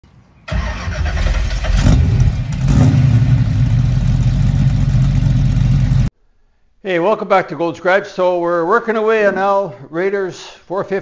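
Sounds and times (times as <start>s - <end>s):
car engine starting and revving: 0.5s - 6.1s.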